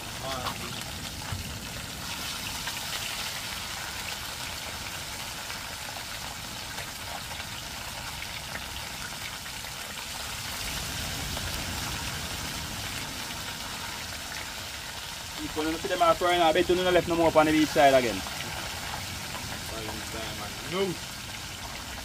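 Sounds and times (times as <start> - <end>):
heavy rain hissing: 0.0 - 5.3, 10.0 - 22.0
low rumble of wind: 0.0 - 22.0.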